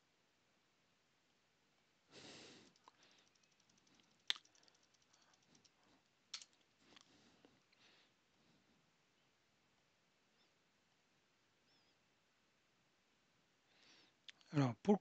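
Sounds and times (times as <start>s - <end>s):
computer keyboard typing: 2.6s - 5.8s.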